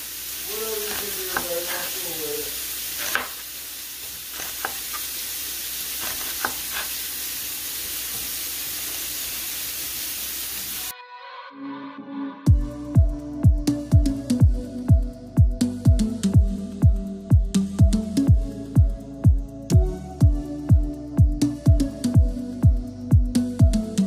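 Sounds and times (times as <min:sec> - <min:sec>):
steaks sizzling in frying pan: 0:00.0 - 0:10.9.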